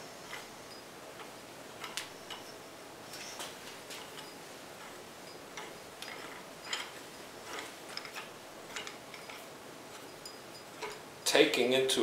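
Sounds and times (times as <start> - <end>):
metallic clicks and scrapes: 0.0 - 11.4.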